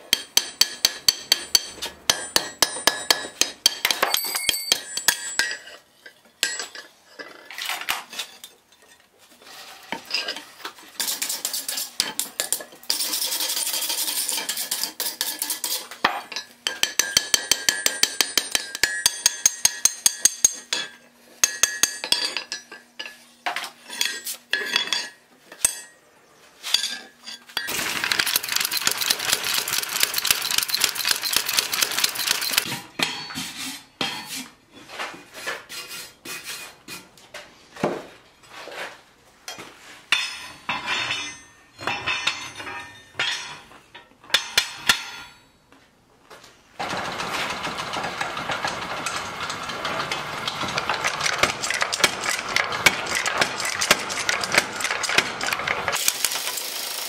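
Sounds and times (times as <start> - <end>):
hammer ringing on anvil: 0.1 - 5.5.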